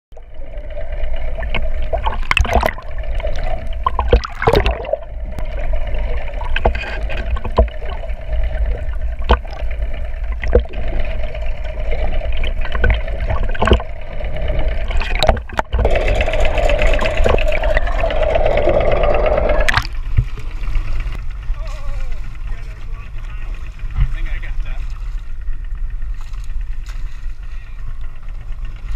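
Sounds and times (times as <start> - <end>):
water rushing and gurgling: 0.1 - 25.2
steady hum: 0.1 - 28.9
sharp clicks and knocks: 6.5 - 8.0, 9.2 - 9.7, 12.4 - 14.0, 14.8 - 17.8.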